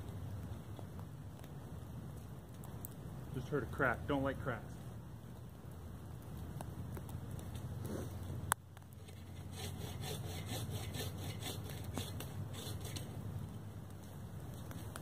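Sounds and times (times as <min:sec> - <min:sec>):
bow saw cutting wood: 0:09.0 - 0:13.1.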